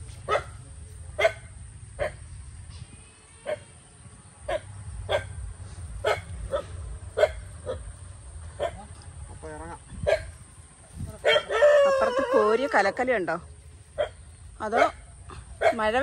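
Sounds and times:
dog barking: 0:00.3 - 0:00.6, 0:01.2 - 0:02.2, 0:04.5 - 0:05.4, 0:06.0 - 0:07.8, 0:08.6 - 0:08.9, 0:10.0 - 0:10.3, 0:11.2 - 0:11.7, 0:14.0 - 0:15.0, 0:15.6 - 0:16.0.

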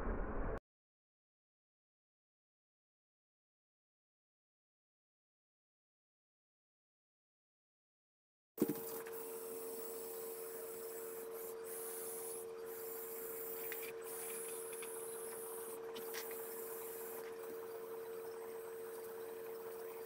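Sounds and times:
small electric motors whining: 0:08.6 - 0:20.0.

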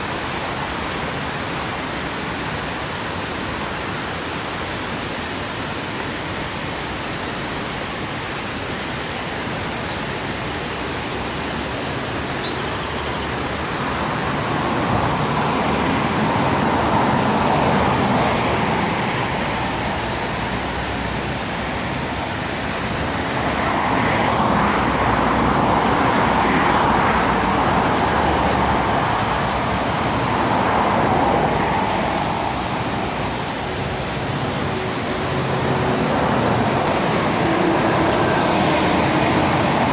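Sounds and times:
river water rushing over dam: 0:00.0 - 0:39.9
cars passing: 0:09.3 - 0:39.9.

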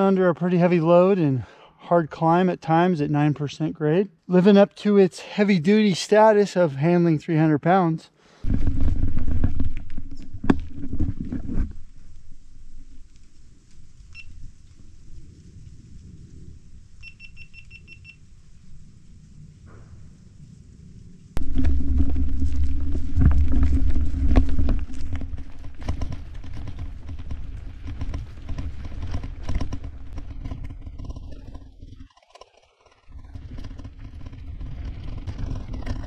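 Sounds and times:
bike rolling over dirt trail: 0:08.4 - 0:17.0, 0:18.5 - 0:36.0
wind rumble on microphone: 0:08.4 - 0:32.0
crackling and clicks: 0:08.4 - 0:36.0.

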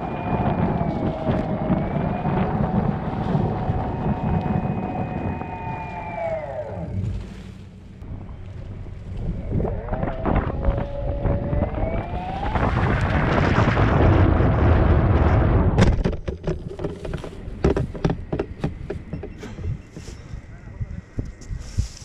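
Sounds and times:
cable cam motor whine: 0:00.0 - 0:07.0, 0:09.4 - 0:13.2
sharp clicks and knocks: 0:15.8 - 0:20.0.

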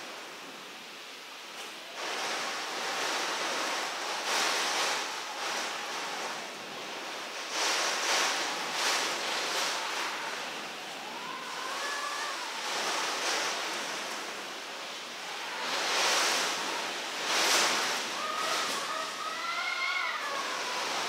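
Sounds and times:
heavy rain lashing house: 0:00.0 - 0:21.0
strong wind rushing: 0:02.0 - 0:21.0.

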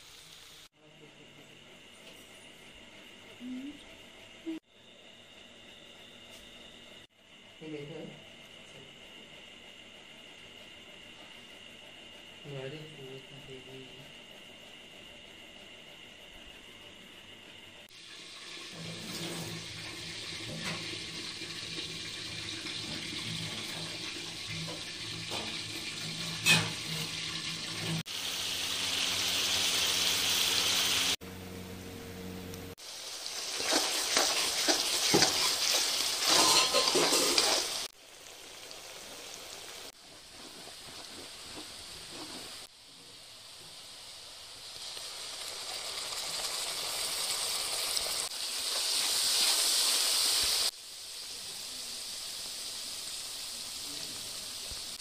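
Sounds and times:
oil sizzling in a pan: 0:00.0 - 0:00.8, 0:17.8 - 0:31.2, 0:32.8 - 0:55.0.

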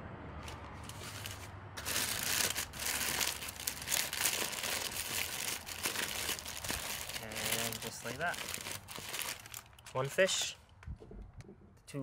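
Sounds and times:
aluminium foil crinkling: 0:00.8 - 0:10.3.

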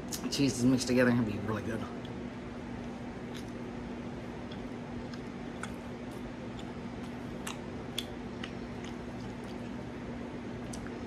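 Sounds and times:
person chewing: 0:02.8 - 0:10.0, 0:10.6 - 0:11.0
wet mouth clicks and smacks: 0:06.5 - 0:09.8.

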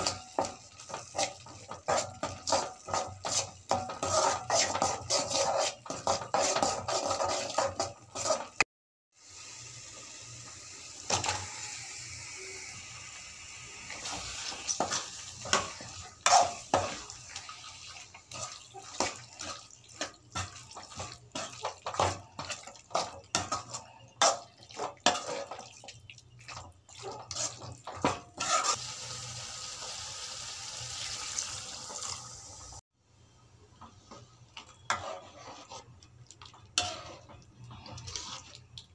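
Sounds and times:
spoon scraping and knocking on pan: 0:00.0 - 0:08.6, 0:14.0 - 0:17.3, 0:18.2 - 0:25.7, 0:26.5 - 0:28.8, 0:33.8 - 0:35.9, 0:36.8 - 0:38.6.

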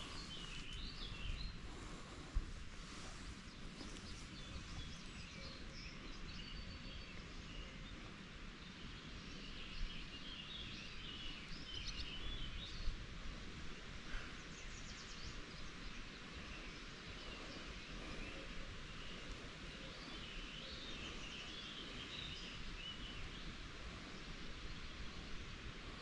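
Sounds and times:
birds chirping and singing: 0:00.0 - 0:02.1.

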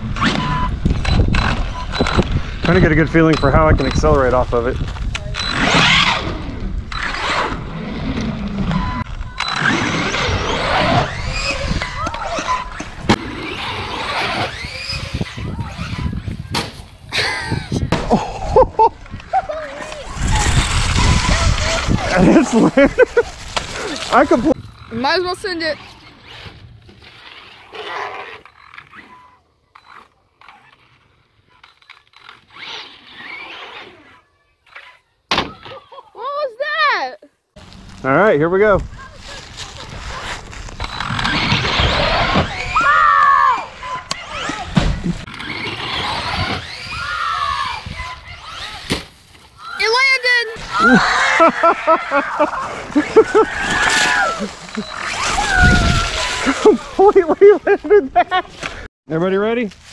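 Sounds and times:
rc truck motor and tyre scrub: 0:05.4 - 0:16.4, 0:19.6 - 0:35.0, 0:39.1 - 0:42.8, 0:43.8 - 0:48.9, 0:52.5 - 0:57.0.

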